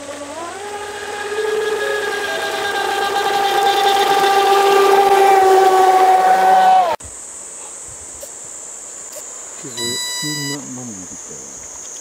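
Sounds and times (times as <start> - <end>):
model boat motor whining: 0.0 - 7.0.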